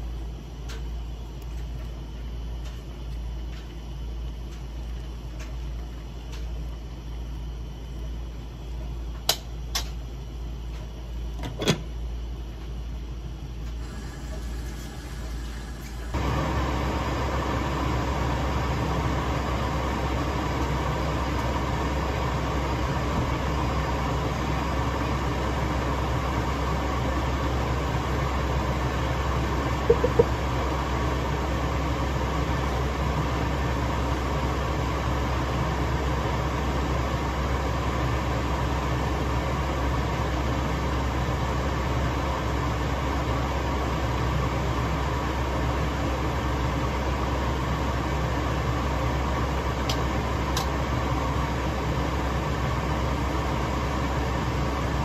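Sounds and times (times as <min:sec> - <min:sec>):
stew boiling hiss: 0:13.8 - 0:25.4
wooden spoon knocking a pot: 0:29.9 - 0:30.3.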